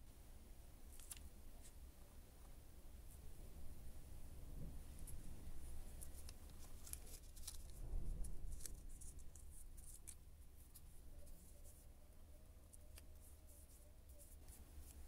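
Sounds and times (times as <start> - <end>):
paper rustling: 0.9 - 1.7, 5.9 - 11.8, 12.7 - 15.0.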